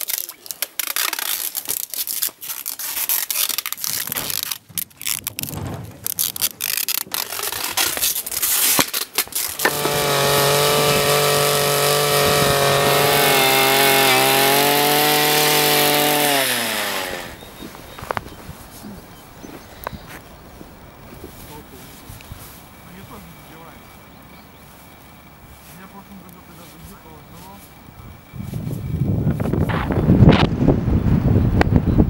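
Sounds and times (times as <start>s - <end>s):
rustling wrapping: 0.0s - 23.7s
small petrol engine running: 9.4s - 17.4s.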